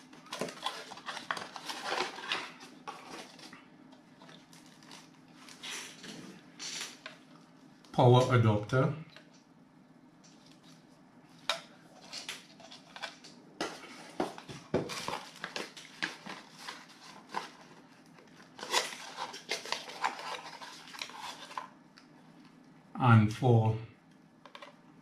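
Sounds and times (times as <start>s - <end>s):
cardboard packaging handled: 0.0s - 5.6s, 12.0s - 21.7s
plastic bag crinkling: 0.1s - 3.5s, 14.4s - 21.7s.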